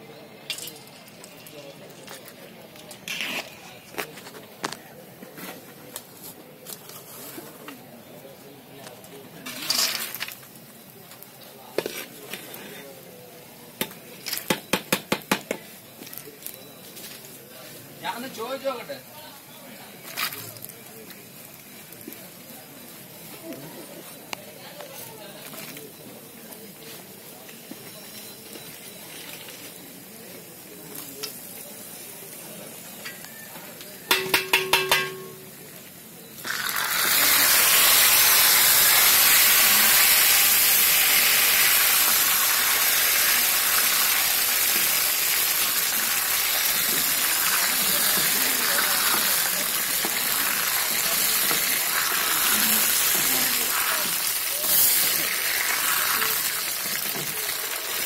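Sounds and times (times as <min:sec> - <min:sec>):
ladle stirring in pot: 0:11.7 - 0:12.6
food sizzling in hot ghee: 0:29.8 - 0:58.0.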